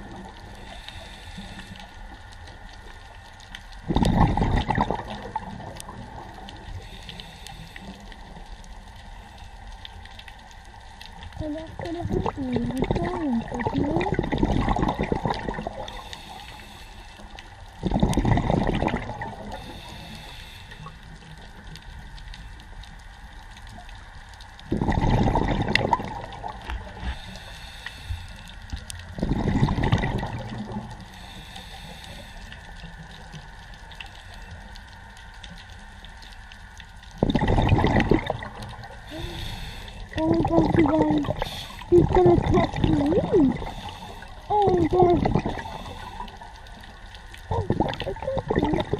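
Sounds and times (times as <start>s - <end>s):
exhaled bubbles rushing underwater: 0.0s - 7.5s, 11.0s - 16.6s, 17.6s - 20.4s, 23.8s - 27.3s, 28.6s - 31.4s, 32.8s - 48.9s
regulator hiss: 15.9s - 17.6s, 19.5s - 21.3s, 39.0s - 40.2s.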